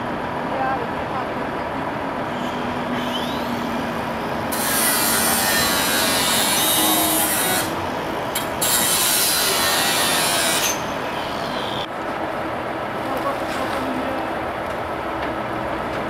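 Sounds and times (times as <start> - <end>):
power tool cutting roof panel: 2.6 - 11.8.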